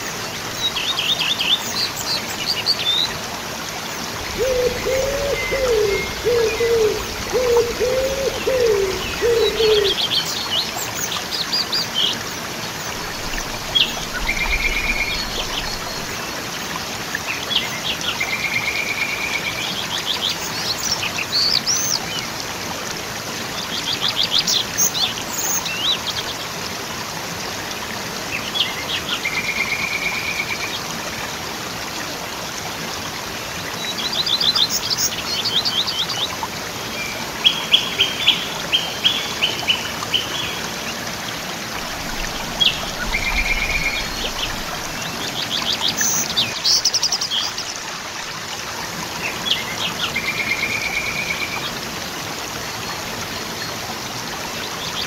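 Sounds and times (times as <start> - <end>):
waterfall rushing: 0.0 - 21.5, 27.0 - 55.0
birds whistling and trilling: 4.3 - 10.0.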